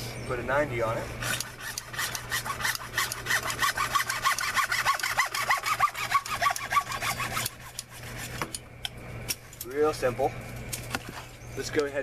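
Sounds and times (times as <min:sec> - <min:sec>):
hacksaw cutting plastic pipe: 0:01.2 - 0:08.5.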